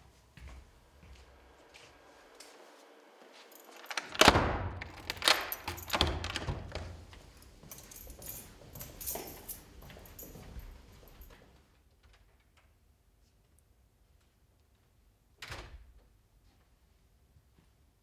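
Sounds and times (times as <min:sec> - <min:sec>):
footsteps on hard floor: 0:00.0 - 0:03.9
door handle rattling: 0:03.8 - 0:07.1
door latch clicks and knocks: 0:03.9 - 0:07.0.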